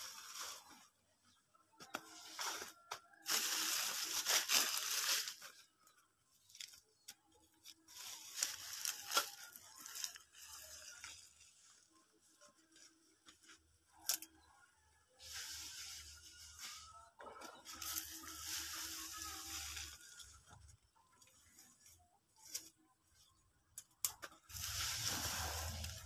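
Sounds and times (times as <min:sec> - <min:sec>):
dry leaves rustling and crackling: 0:00.0 - 0:00.9, 0:02.2 - 0:05.9, 0:07.9 - 0:12.9, 0:15.2 - 0:22.7, 0:24.5 - 0:26.0.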